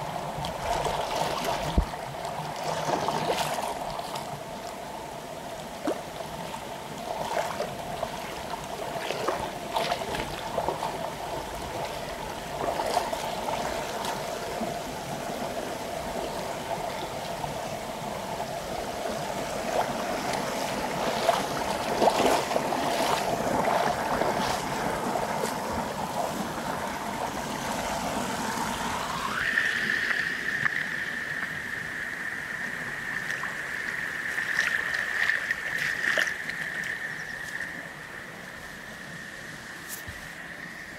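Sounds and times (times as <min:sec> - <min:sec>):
stream rushing over stones: 0:00.0 - 0:40.9
small water splashes: 0:00.4 - 0:04.4, 0:05.8 - 0:14.7, 0:19.5 - 0:38.2
steady tone: 0:28.0 - 0:40.9.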